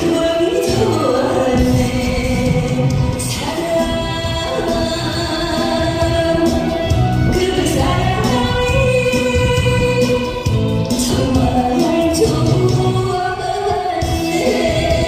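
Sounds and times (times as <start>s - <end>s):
backing music: 0.0s - 15.0s
woman singing into a microphone: 0.0s - 15.0s.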